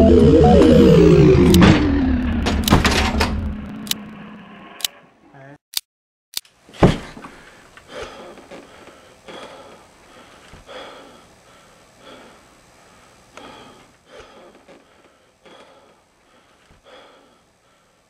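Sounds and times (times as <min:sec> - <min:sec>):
man breathing heavily: 0:07.2 - 0:18.0.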